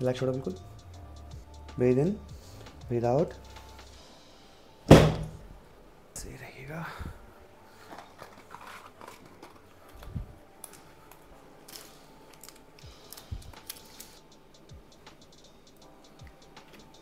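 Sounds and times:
small clicks and rustles: 7.8s - 14.2s.

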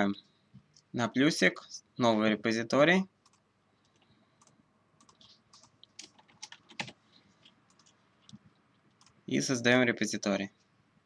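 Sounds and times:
keyboard typing: 3.2s - 9.2s.

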